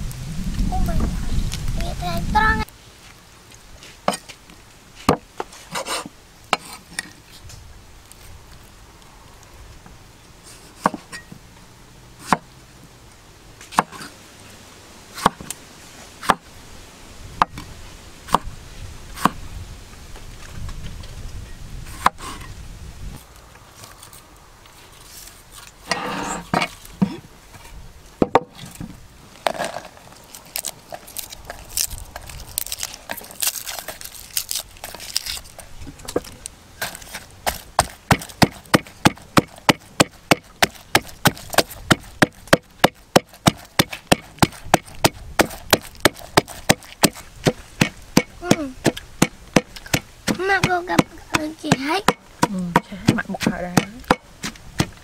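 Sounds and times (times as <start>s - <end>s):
knife chopping on wooden board: 36.8s - 55.0s
person speaking: 48.4s - 48.9s, 50.3s - 54.1s.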